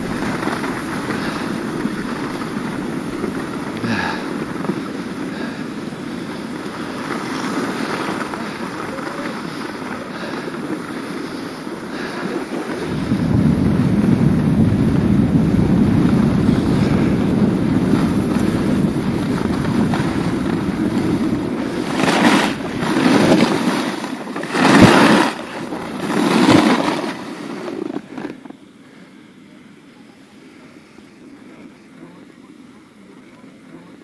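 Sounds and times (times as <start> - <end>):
wind buffeting microphone: 0.0 - 7.2, 12.7 - 26.8
skis scraping on snow: 0.0 - 29.2.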